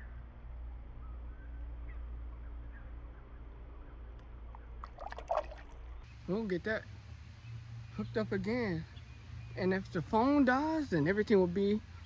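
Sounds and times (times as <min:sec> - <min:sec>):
steady low rumble: 0:00.0 - 0:12.0
faint bird chirps: 0:00.9 - 0:04.8.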